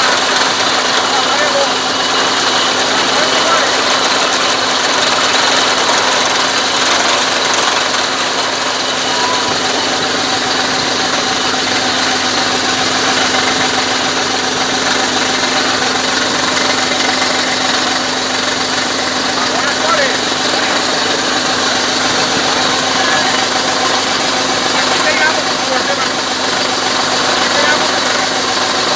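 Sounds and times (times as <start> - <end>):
drilling rig engine running: 0.0 - 28.9.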